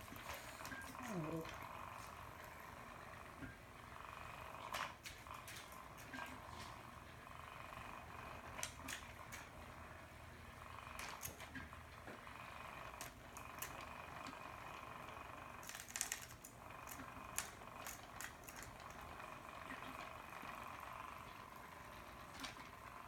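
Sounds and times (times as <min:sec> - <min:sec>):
toy and claws tapping floor: 0:15.6 - 0:19.1.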